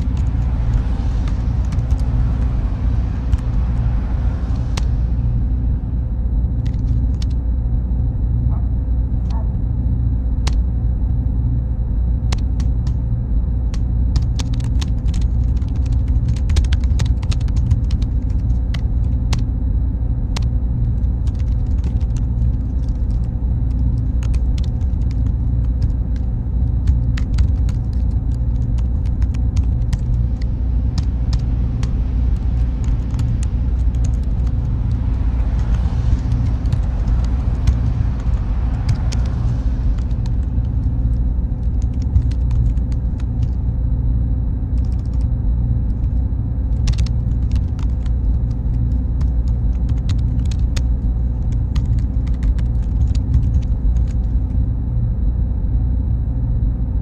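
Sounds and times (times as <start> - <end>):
faint high whine: 0.0 - 57.0
low server drone: 0.0 - 57.0
keyboard typing clicks: 46.8 - 48.1.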